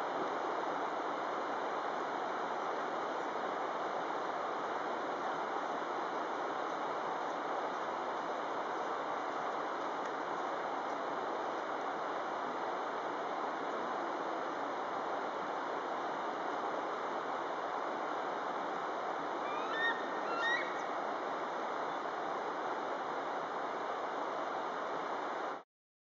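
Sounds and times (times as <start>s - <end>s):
bird calls: 19.4s - 21.0s.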